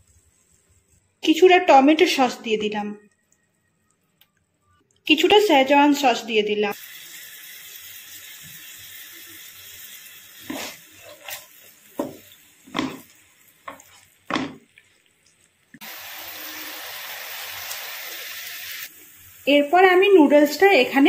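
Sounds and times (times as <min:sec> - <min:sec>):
vegetables sizzling in a wok: 0:06.7 - 0:21.0
spatula scraping a pan: 0:10.4 - 0:13.1.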